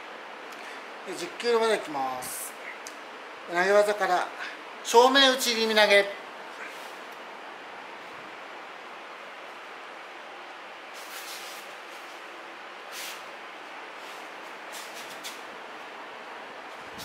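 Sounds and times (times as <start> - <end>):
background hiss: 0.0 - 17.0
bare feet sliding on mats: 13.9 - 15.5.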